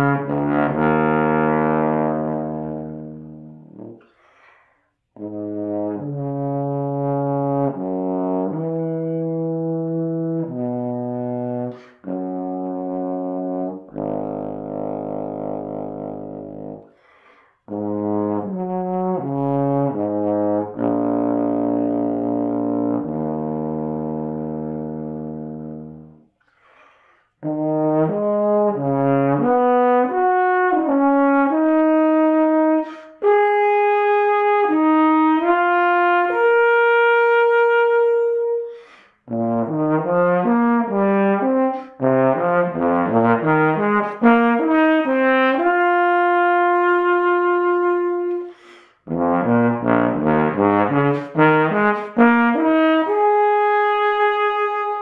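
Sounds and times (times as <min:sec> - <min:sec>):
bass trombone playing: 0:00.0 - 0:04.0, 0:05.2 - 0:16.9, 0:17.7 - 0:26.3, 0:27.4 - 0:55.0.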